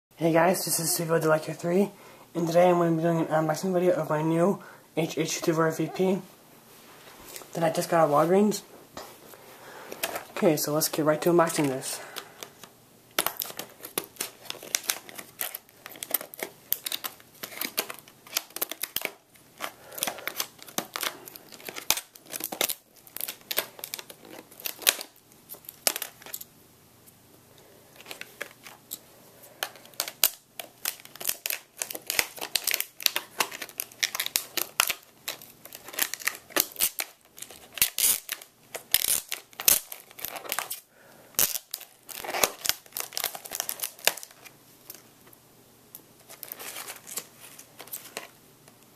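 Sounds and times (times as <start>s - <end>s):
plastic packaging crinkling: 9.9s - 26.5s, 27.8s - 45.3s, 46.2s - 48.8s.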